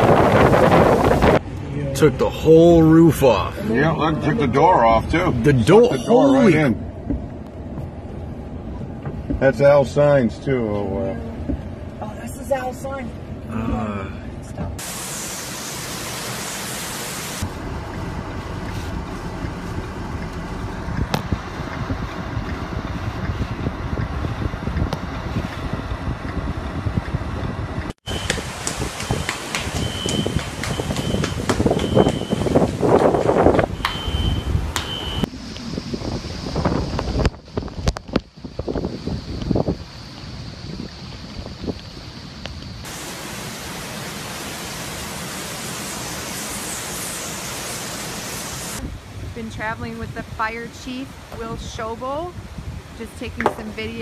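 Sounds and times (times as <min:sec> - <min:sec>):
wind buffeting microphone: 0:00.0 - 0:01.6, 0:18.2 - 0:43.0, 0:48.7 - 0:54.0
driving rain: 0:00.0 - 0:54.0.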